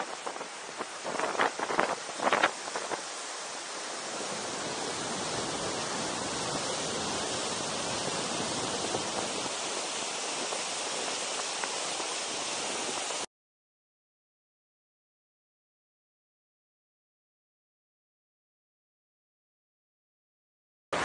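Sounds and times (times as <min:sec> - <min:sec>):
waterfall roaring: 0:00.0 - 0:13.3.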